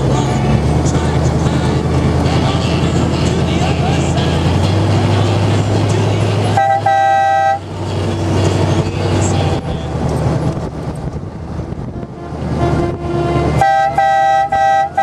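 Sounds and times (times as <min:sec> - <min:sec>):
trike engine running: 0:00.0 - 0:15.0
vehicle horn toot: 0:06.5 - 0:07.7, 0:11.9 - 0:15.0.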